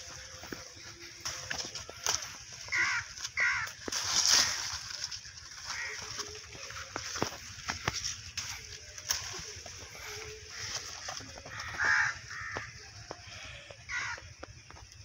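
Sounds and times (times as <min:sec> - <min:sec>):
crow cawing: 0:02.7 - 0:04.7, 0:05.6 - 0:06.4, 0:10.4 - 0:14.4.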